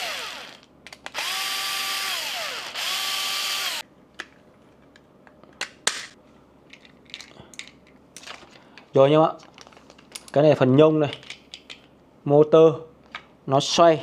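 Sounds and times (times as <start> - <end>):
small motor whining: 0.0 - 3.8.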